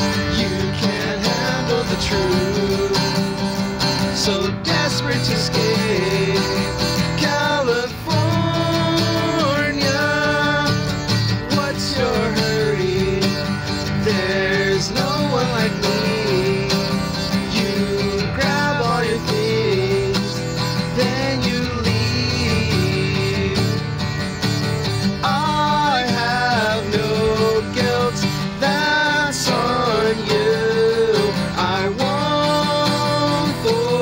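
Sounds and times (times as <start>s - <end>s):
strummed acoustic guitar: 0.0s - 34.0s
two men singing: 0.0s - 34.0s.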